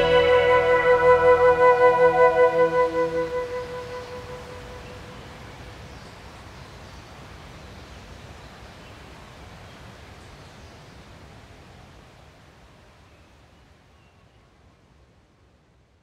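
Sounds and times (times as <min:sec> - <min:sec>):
flute note: 0:00.0 - 0:05.4
faint background hiss: 0:00.0 - 0:16.0.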